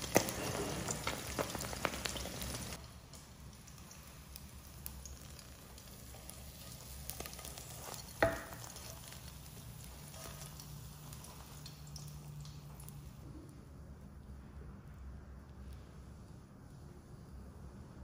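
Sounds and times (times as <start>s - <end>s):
omelette sizzling: 0.0s - 13.5s.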